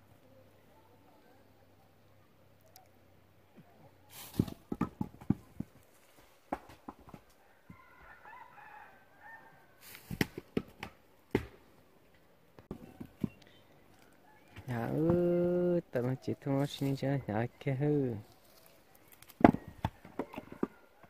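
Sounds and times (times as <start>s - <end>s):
rustling: 4.1s - 7.4s, 9.8s - 10.6s, 18.2s - 20.8s
rooster crowing faintly: 7.2s - 10.3s, 13.9s - 15.6s, 18.2s - 21.0s.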